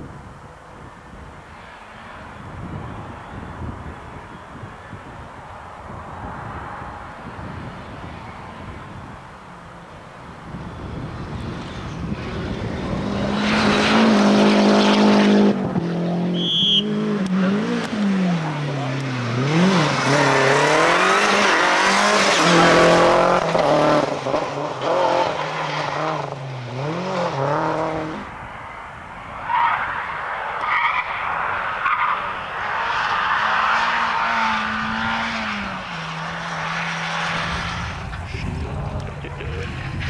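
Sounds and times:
car passing: 1.3 - 40.0
rally car engines revving: 10.3 - 28.4, 29.2 - 40.0.

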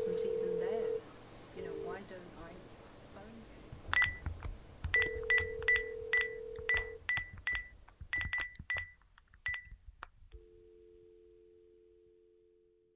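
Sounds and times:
key-press beeps: 3.9 - 4.3, 4.9 - 9.8
telephone dial tone: 5.0 - 7.0.

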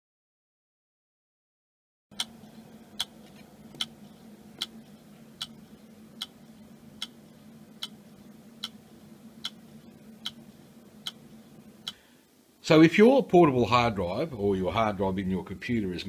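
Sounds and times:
hard drive clicking: 2.1 - 12.0
low steady hum: 2.1 - 16.0.

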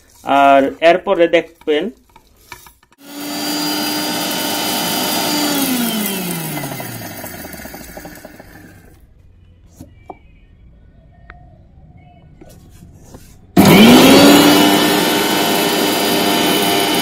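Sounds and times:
mixer grinder running: 3.0 - 9.0, 13.6 - 17.0.

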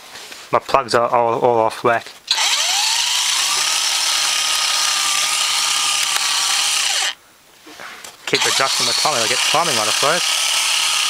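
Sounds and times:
electric motor whine: 2.3 - 7.2, 8.4 - 11.0
mechanism whirring: 2.3 - 7.2, 8.3 - 11.0.

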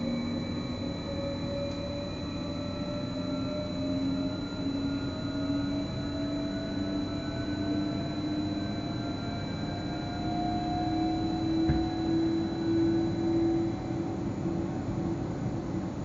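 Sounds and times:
train traction drive whine: 0.0 - 16.0.

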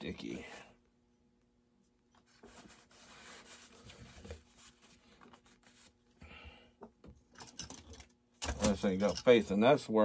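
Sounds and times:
cloth rag rubbing hands: 2.2 - 6.0.

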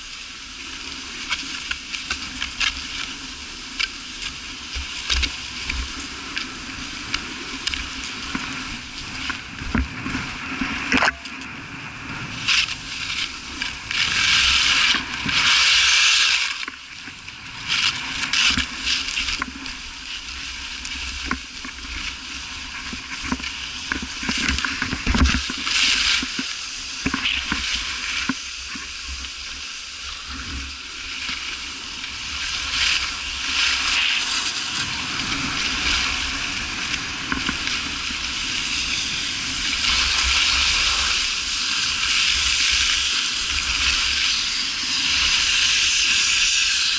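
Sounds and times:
wind rumble on microphone: 0.0 - 46.9
ski edges scraping snow: 12.0 - 46.9.

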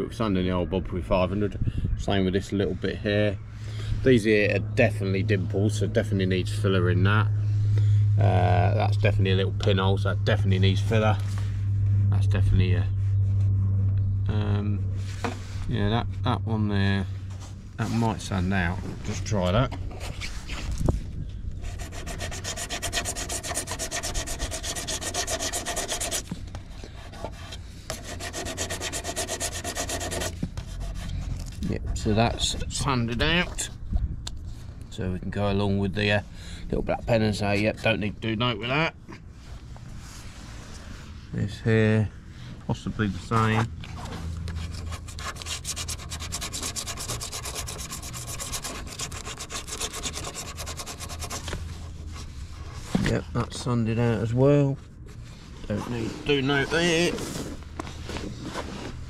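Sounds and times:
sanding disc rubbing fibreglass: 21.6 - 31.3, 44.6 - 52.1.

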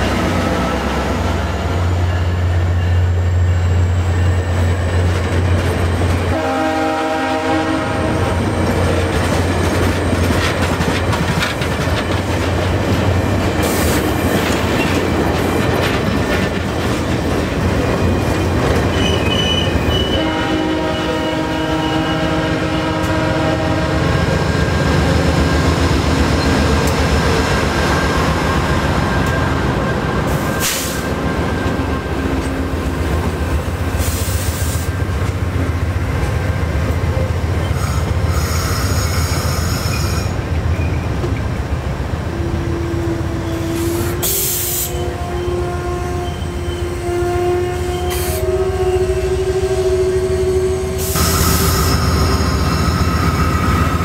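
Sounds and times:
diesel locomotive engine humming: 0.0 - 54.0
train horn: 6.2 - 9.4, 19.4 - 24.6, 42.3 - 54.0
train wheels clicking over rail joints: 8.6 - 20.1.

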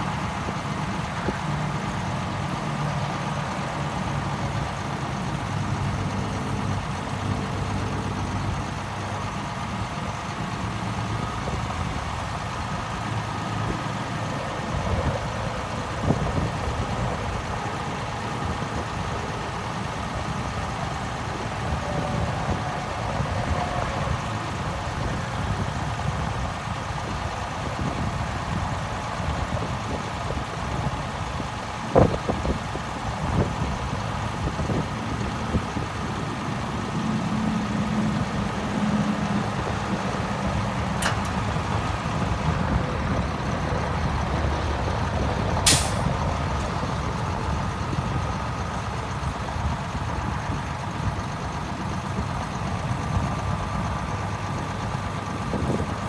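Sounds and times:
diesel truck engine idling: 0.0 - 56.0
hydraulics working: 0.0 - 56.0
short hiss of air: 45.6 - 46.1.

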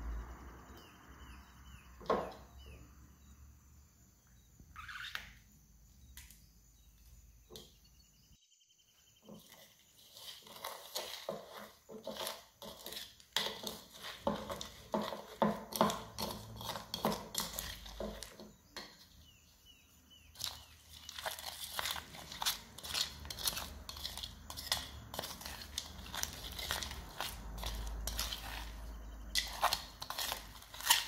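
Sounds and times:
plastic spoon scraping plastic bowl: 9.3 - 19.4, 20.2 - 31.0.

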